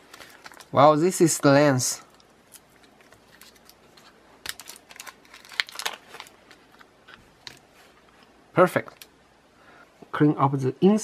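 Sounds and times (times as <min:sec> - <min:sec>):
plastic packet crinkling: 0:00.0 - 0:01.2, 0:02.0 - 0:07.7.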